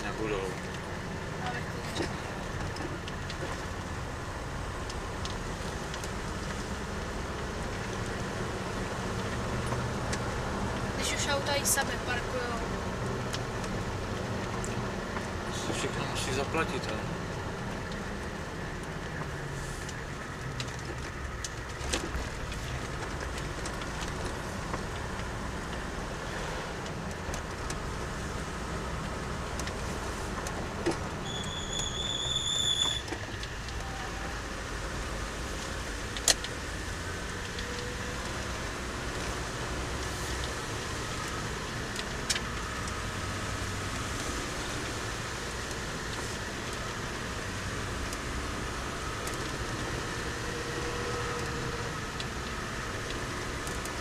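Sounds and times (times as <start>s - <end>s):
car engine and tyre rumble: 0.0s - 54.0s.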